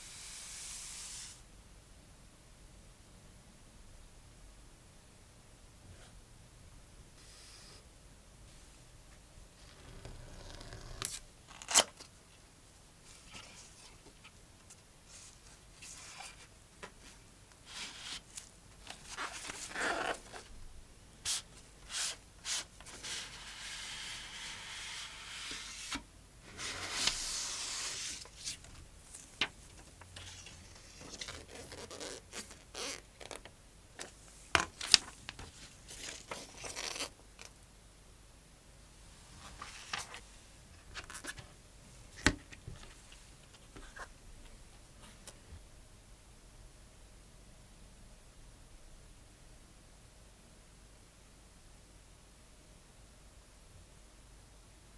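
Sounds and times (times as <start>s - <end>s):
cardboard sliding against cardboard: 21.9s - 28.6s
paper leaflet unfolding: 25.2s - 28.6s.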